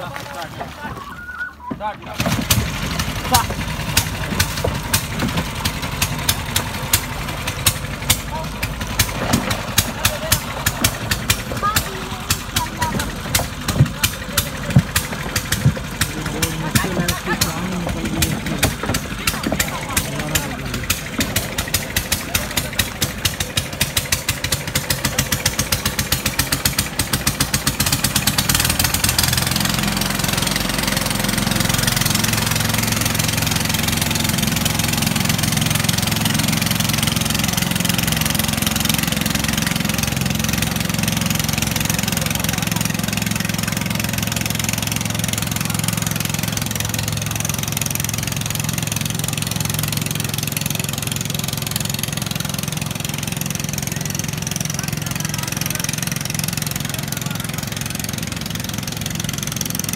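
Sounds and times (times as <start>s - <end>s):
boat engine putting: 0.0s - 59.9s.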